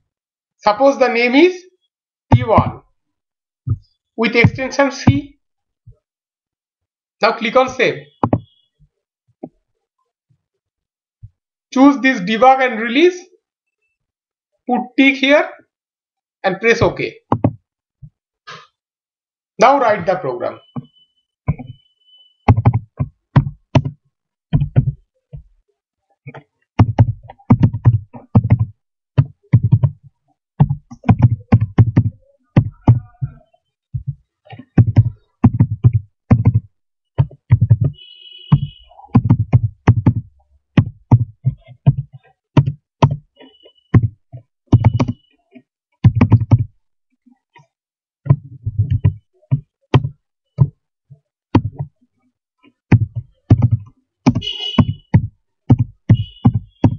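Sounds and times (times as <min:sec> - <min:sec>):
typing on keyboard: 0:44.0 - 0:45.3, 0:53.0 - 0:56.9.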